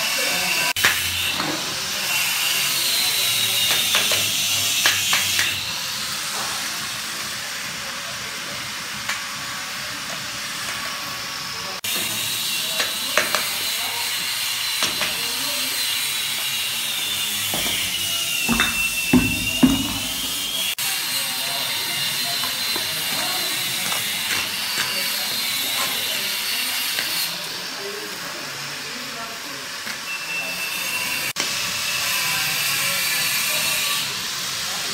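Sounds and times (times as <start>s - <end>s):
trowel tapping and scraping bricks: 17.5s - 20.6s.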